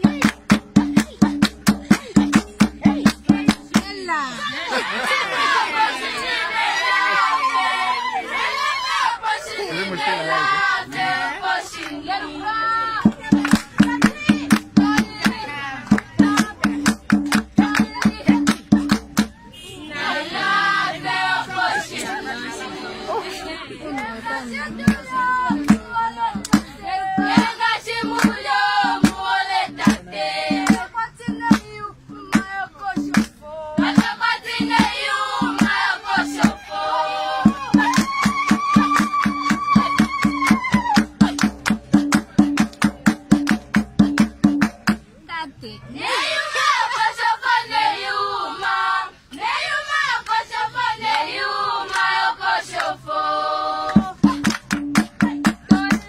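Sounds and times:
sharp steady beat: 0.0s - 4.2s, 13.0s - 19.4s, 24.8s - 36.7s, 37.4s - 45.2s
group singing in chorus: 4.6s - 12.6s, 19.9s - 31.1s, 32.3s - 40.5s, 46.0s - 56.0s.

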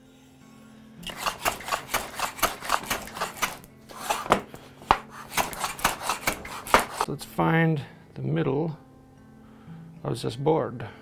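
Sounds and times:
hand plane cutting wood: 1.0s - 7.1s.

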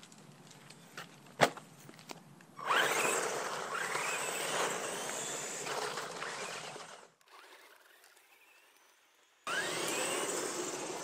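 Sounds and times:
tyres rolling on asphalt: 0.0s - 11.0s
electric motor whining: 2.6s - 8.7s, 9.5s - 11.0s.

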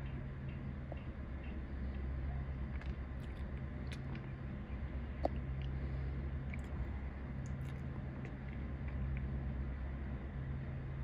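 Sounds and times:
faint clicks and ticks: 0.0s - 5.8s
low hum of distant ambience: 0.0s - 11.0s.

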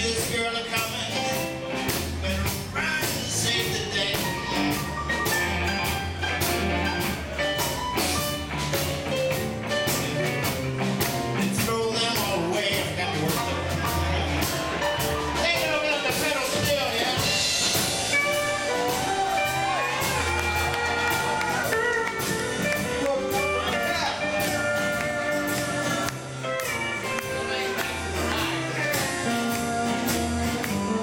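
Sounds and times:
steady beat: 0.1s - 31.0s
electric guitar: 17.1s - 31.0s.

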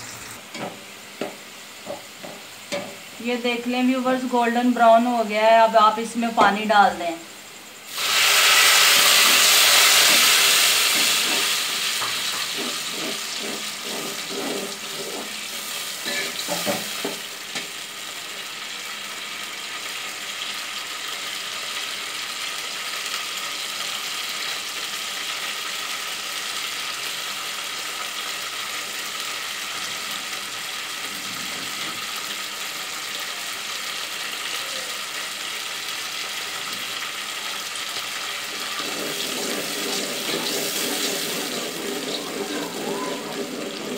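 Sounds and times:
hiss and sizzle in a pot: 0.0s - 43.9s.

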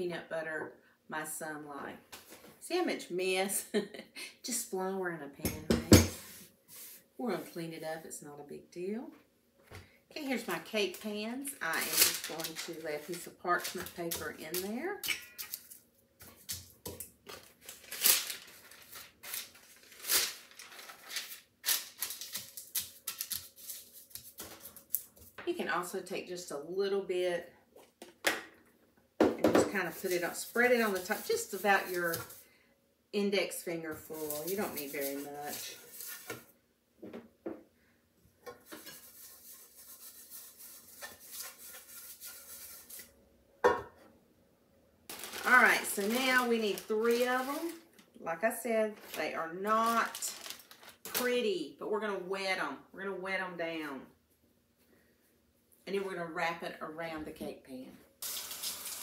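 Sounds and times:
parchment paper rustling and crinkling: 10.3s - 14.8s, 15.5s - 25.4s, 29.7s - 32.4s, 34.0s - 36.5s, 45.1s - 48.1s, 48.9s - 51.4s
fingers rubbing inside a pan: 38.6s - 43.1s.

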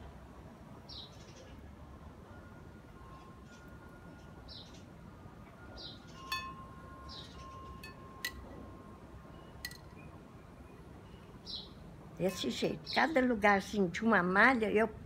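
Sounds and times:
faint held chime tones: 2.2s - 11.4s
bird chirping: 3.2s - 4.9s, 5.6s - 8.4s, 9.3s - 13.2s
metal chimes struck: 6.1s - 8.5s.

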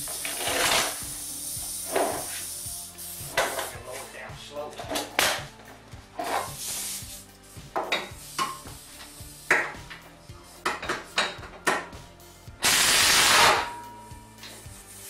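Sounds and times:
pneumatic tool rushing burst: 0.0s - 2.5s, 12.6s - 13.7s.

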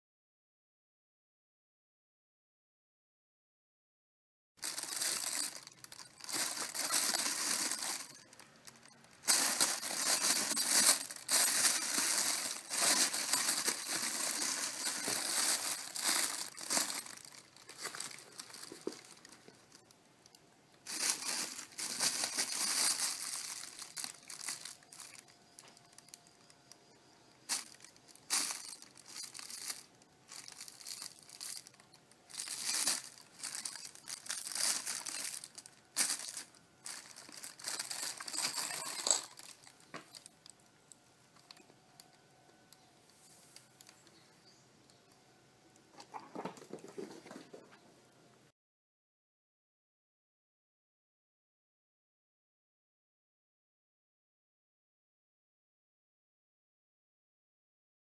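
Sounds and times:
plastic bag crinkling: 4.6s - 19.9s, 20.9s - 26.8s, 27.5s - 40.7s.

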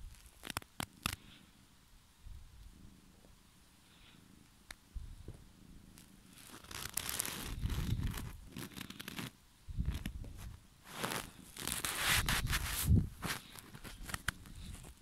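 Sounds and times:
rustling of fur and sleeve: 5.8s - 15.0s.

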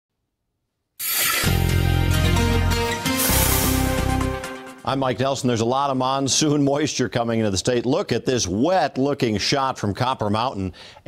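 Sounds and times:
news theme music: 1.2s - 5.7s.

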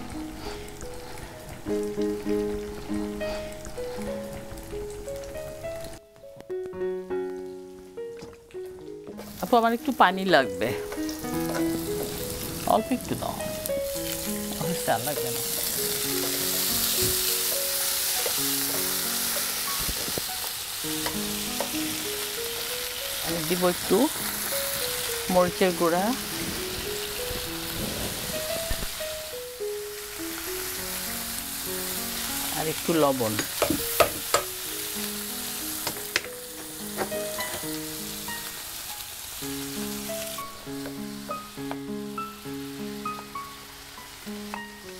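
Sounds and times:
onions sizzling in hot oil: 0.0s - 6.0s, 9.1s - 44.9s
background music with held notes: 0.0s - 44.9s
wooden spatula knocking on pan: 33.3s - 34.5s.

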